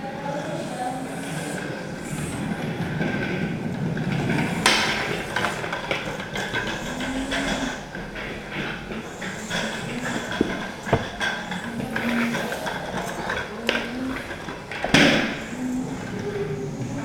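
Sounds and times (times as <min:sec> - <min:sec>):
bike rolling over wooden floor: 0:03.0 - 0:15.5
clicks and knocks: 0:09.6 - 0:11.3.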